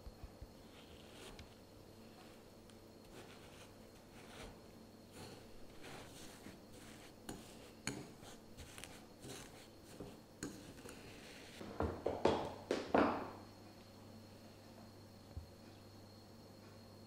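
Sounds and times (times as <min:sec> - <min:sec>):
fork scraping glass bowl: 0:05.1 - 0:11.1.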